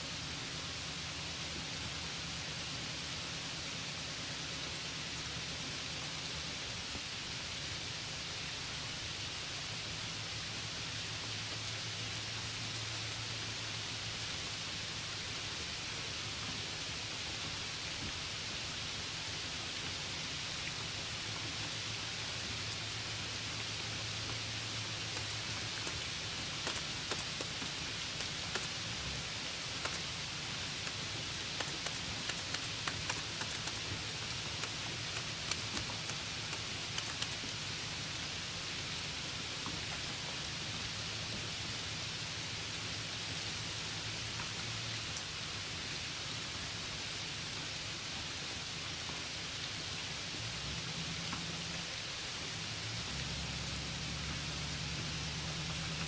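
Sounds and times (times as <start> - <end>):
steady hissing noise: 0.0 - 56.0
sharp ticks: 25.0 - 28.9, 29.7 - 30.2, 30.8 - 37.5.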